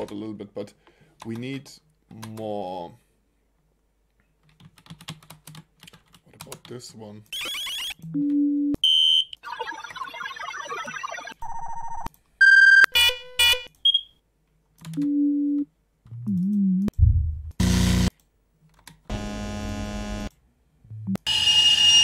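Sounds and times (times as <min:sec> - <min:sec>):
electronic beeps: 0:07.4 - 0:12.9
synthetic alarm tones: 0:07.4 - 0:13.6.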